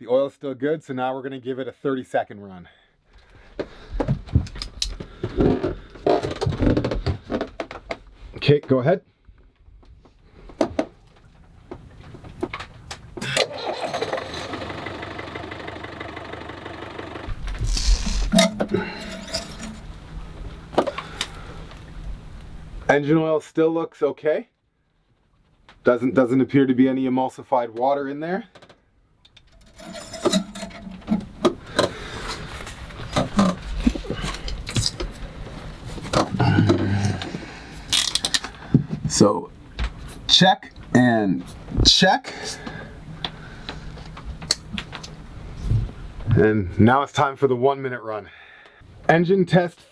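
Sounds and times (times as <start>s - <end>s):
boat engine running: 13.5s - 17.4s.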